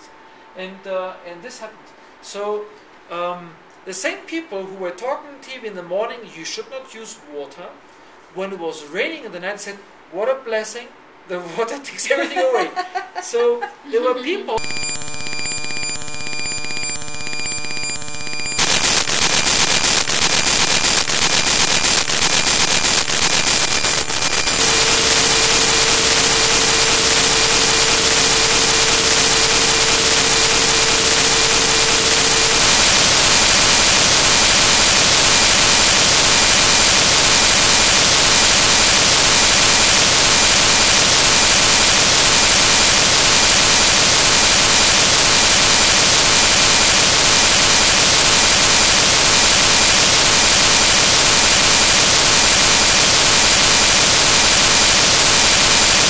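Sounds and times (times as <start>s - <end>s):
held electronic tone: 14.6s - 35.5s
buzzing tones: 14.6s - 37.3s
harsh static hiss: 14.6s - 56.0s.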